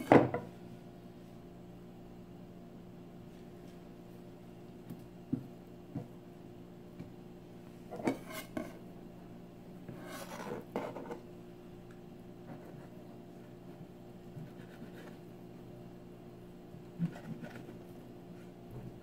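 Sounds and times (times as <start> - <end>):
knife scraping: 7.9 - 8.8, 9.9 - 11.2.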